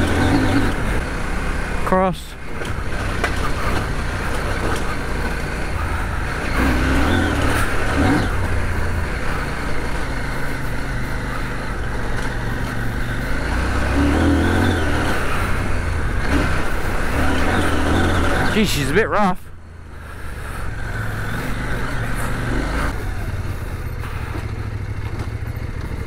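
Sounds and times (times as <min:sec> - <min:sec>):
motorcycle engine running: 0:00.0 - 0:26.0.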